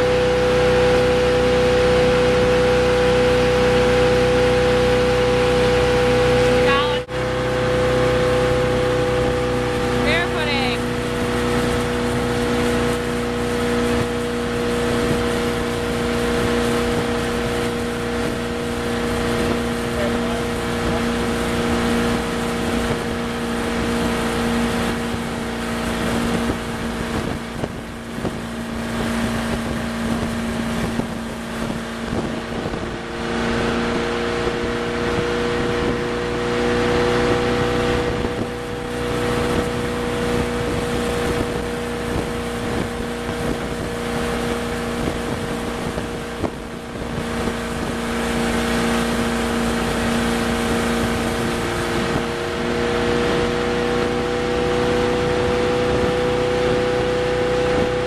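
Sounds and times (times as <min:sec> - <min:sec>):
boat engine drone: 0:00.0 - 0:58.0
rushing water: 0:00.0 - 0:58.0
wind on microphone: 0:00.0 - 0:58.0.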